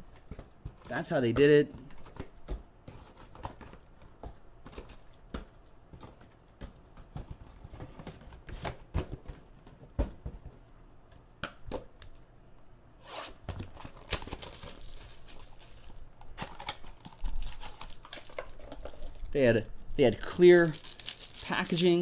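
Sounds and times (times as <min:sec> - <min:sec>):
wrapping rustling and tearing: 0:13.7 - 0:22.0.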